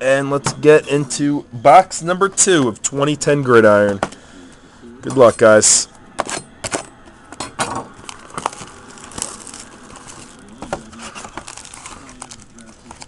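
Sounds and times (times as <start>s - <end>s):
shrink wrap crinkling and tearing: 8.0s - 13.0s.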